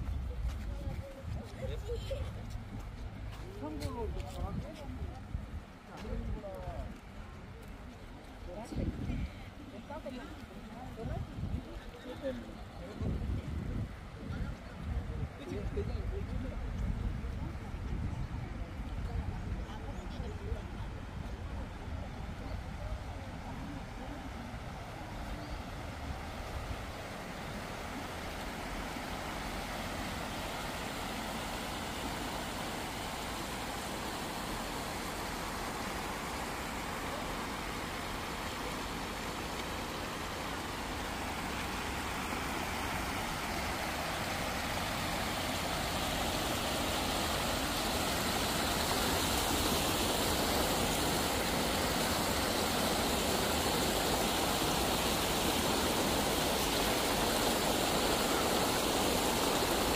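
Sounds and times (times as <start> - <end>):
stream water rushing over stones: 23.0 - 59.9.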